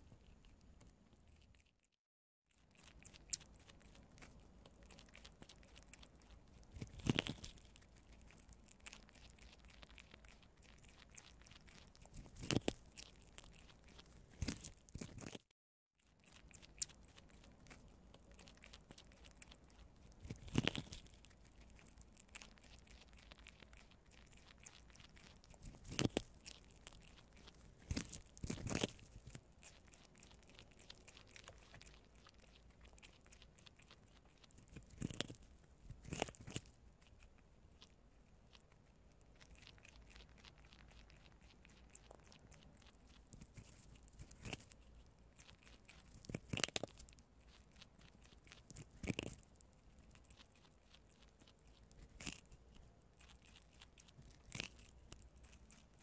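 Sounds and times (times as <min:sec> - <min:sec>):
prairie dogs gnawing corn: 0:00.0 - 0:56.0.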